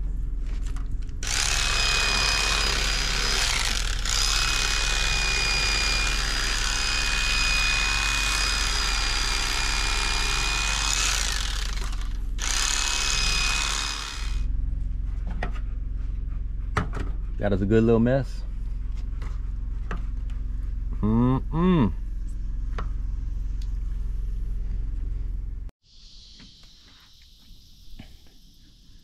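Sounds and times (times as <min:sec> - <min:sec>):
electric knife buzzing: 0:01.2 - 0:14.5.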